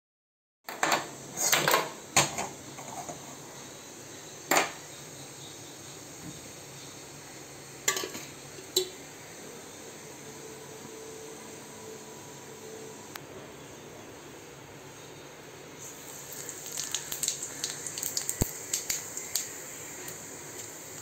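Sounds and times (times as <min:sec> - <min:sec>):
gas burner hissing: 0:00.8 - 0:13.7, 0:15.8 - 0:21.0
steel ladle knocking pan: 0:07.9 - 0:09.0.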